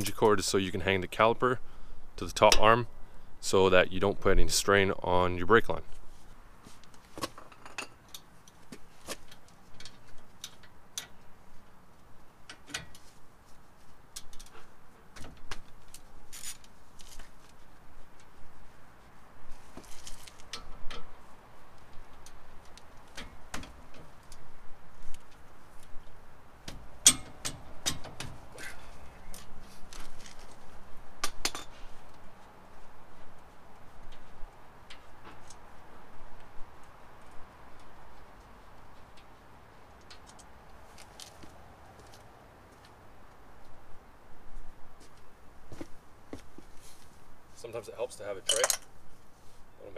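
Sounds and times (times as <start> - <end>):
ratchet and bolts clinking: 48.4 - 48.9.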